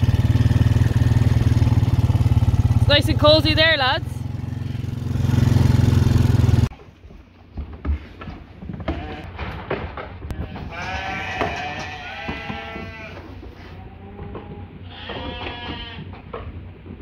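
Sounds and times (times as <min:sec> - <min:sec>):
sheep bleating: 0:08.9 - 0:09.3, 0:10.3 - 0:16.1.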